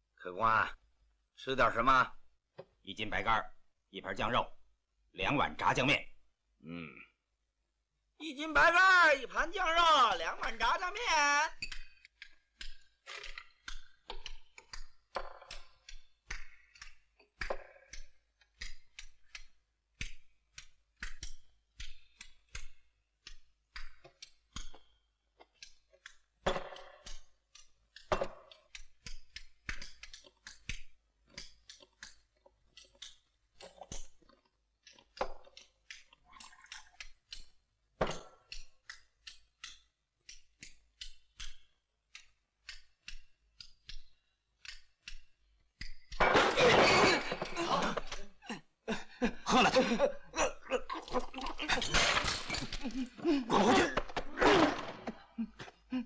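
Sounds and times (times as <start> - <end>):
crockery and chopsticks clattering: 50.6 - 54.6.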